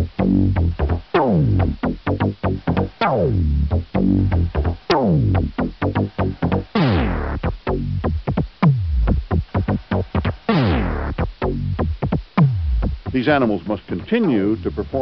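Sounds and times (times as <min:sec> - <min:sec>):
background music with fast beat: 0:00.0 - 0:15.0.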